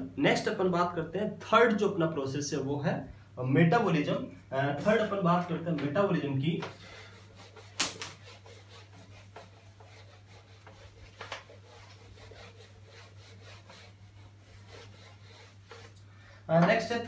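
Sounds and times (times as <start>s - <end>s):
eraser rubbing on whiteboard: 6.8s - 16.0s.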